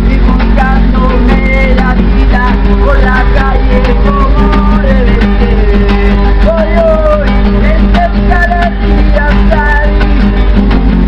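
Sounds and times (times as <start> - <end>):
man singing: 0.0 - 10.2
acoustic guitar strumming: 0.0 - 11.0.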